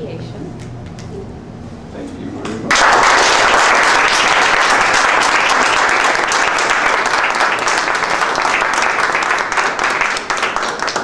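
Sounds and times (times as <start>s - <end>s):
crowd applauding: 2.7s - 11.0s.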